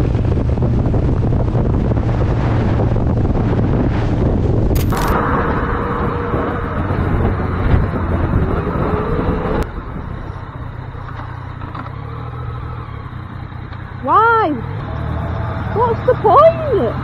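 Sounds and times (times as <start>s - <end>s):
vehicle engine running: 0.0s - 17.0s
wind and road rush: 0.0s - 17.0s
faint rising engine tone: 5.1s - 13.4s.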